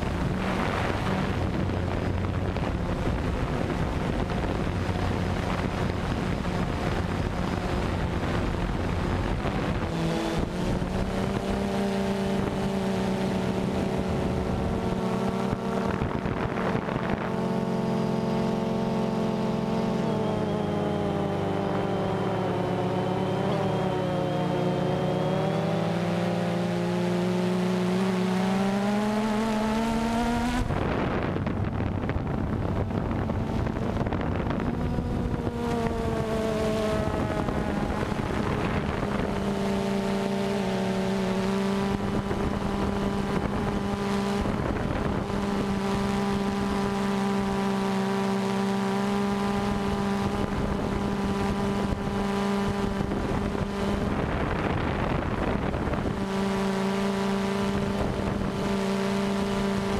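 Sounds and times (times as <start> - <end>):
wind on microphone: 0.0 - 24.3, 25.0 - 47.8, 49.2 - 59.9
drone propellers humming: 0.0 - 59.9.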